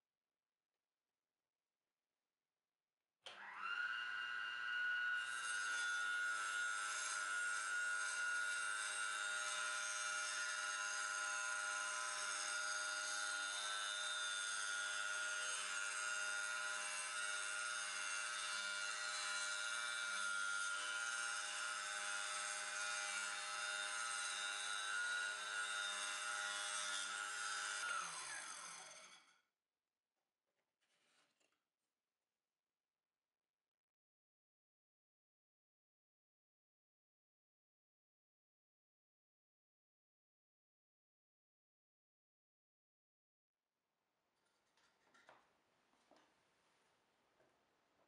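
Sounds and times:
saw winding down: 0:03.3 - 0:29.3
table saw whining: 0:03.3 - 0:29.3.

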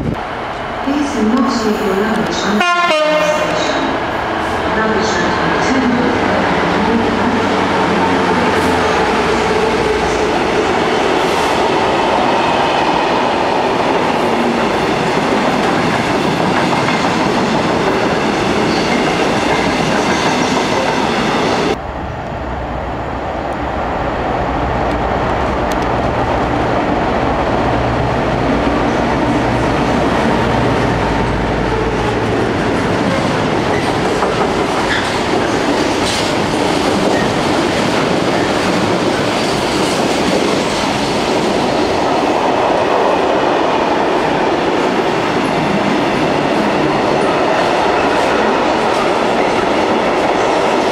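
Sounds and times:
train wheels clickety-clack: 0:14.0 - 0:21.8, 0:32.6 - 0:43.4
diesel locomotive engine drone: 0:20.8 - 0:39.2.

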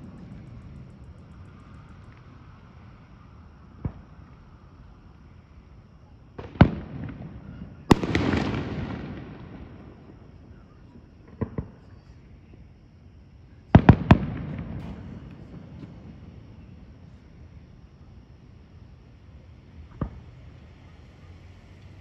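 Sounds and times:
rumble after fireworks: 0:00.0 - 0:22.0
fireworks bangs: 0:03.6 - 0:05.3, 0:06.3 - 0:12.7, 0:13.6 - 0:17.7, 0:19.8 - 0:20.5.

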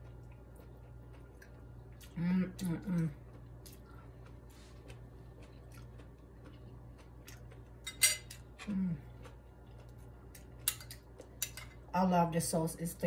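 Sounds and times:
fork clinking on ceramic plate: 0:07.8 - 0:08.4.

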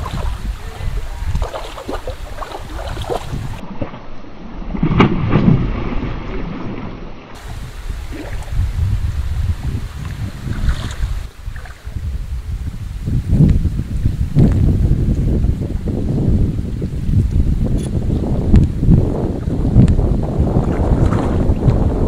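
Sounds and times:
wind buffeting microphone: 0:00.0 - 0:03.7, 0:07.4 - 0:22.0
fish thrashing and splashing: 0:01.3 - 0:03.6.

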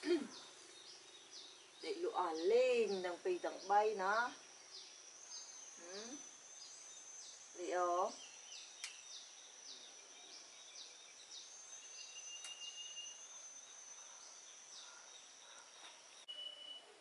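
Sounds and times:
thin high whine: 0:15.8 - 0:17.0.

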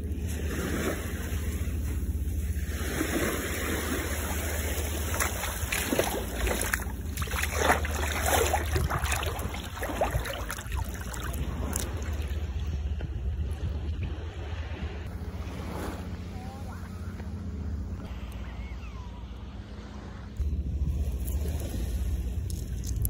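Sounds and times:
wind rumble on microphone: 0:00.0 - 0:18.2, 0:19.9 - 0:23.0
seawater splashing around legs: 0:00.3 - 0:12.5.

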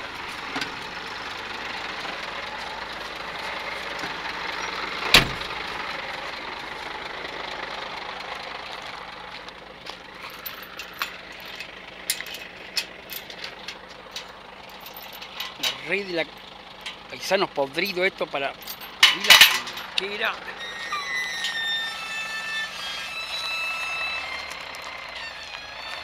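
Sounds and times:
diesel truck engine idling: 0:00.0 - 0:26.0
chain latch clinking: 0:10.2 - 0:17.1, 0:18.6 - 0:20.0.

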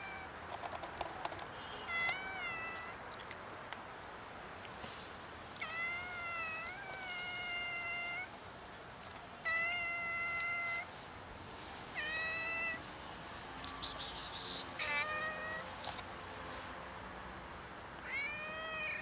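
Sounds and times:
cat meowing: 0:14.8 - 0:15.7, 0:18.0 - 0:19.0.

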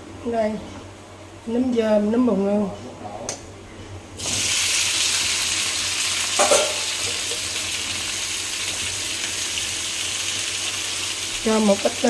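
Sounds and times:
mushrooms sizzling in hot oil: 0:04.2 - 0:12.0.

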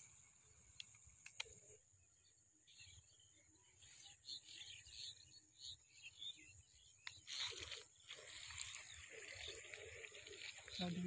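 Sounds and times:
faint chirps: 0:00.0 - 0:11.0
footsteps crunching on dry earth: 0:07.3 - 0:11.0.

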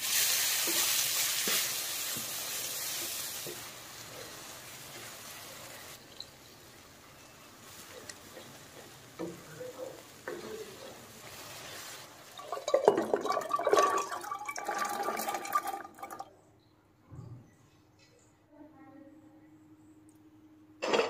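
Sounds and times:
stirring and liquid sounds: 0:00.0 - 0:16.4.

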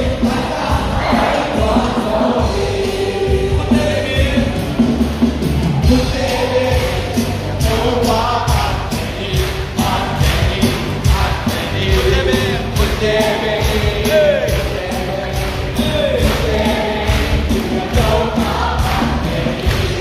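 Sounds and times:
band with bass and drums: 0:00.0 - 0:20.0
voices singing: 0:00.0 - 0:20.0.

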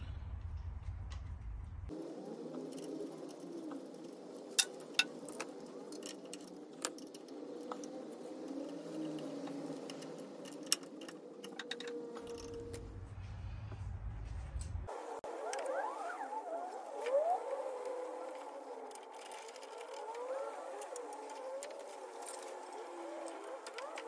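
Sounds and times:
metal parts clinking: 0:02.7 - 0:12.8.

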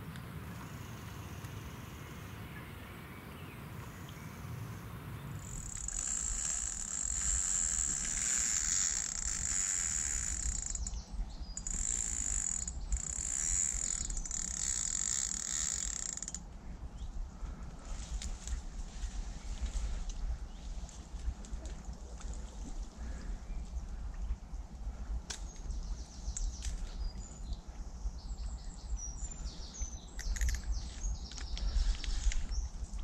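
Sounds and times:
fishing reel clutch buzzing: 0:05.4 - 0:11.0, 0:11.6 - 0:16.4.

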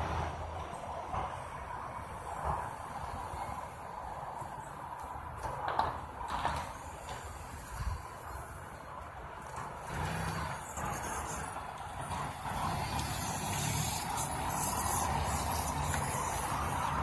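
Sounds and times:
object scraping along asphalt: 0:05.4 - 0:17.0
car engine driving off: 0:09.5 - 0:17.0.

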